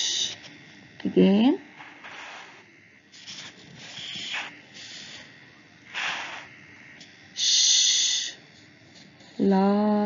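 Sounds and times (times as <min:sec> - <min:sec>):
breathy hisses: 0:00.0 - 0:00.4, 0:01.8 - 0:08.4.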